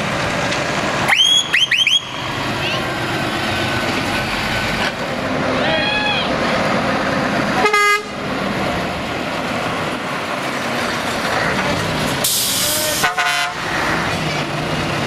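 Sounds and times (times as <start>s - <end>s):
lorry diesel engines: 0.0s - 15.0s
air horn blasts: 7.6s - 8.1s, 12.9s - 13.7s
air release hiss: 12.2s - 13.0s.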